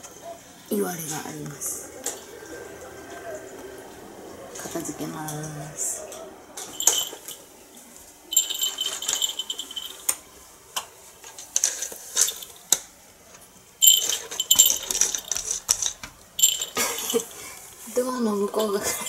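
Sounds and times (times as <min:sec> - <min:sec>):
cat toy rattling and jingling: 0:06.6 - 0:07.5, 0:08.3 - 0:10.2, 0:13.8 - 0:17.4.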